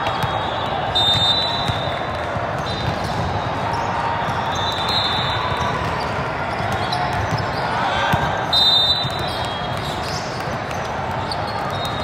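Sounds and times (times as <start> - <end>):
balls hit and bouncing: 0.0 - 12.0.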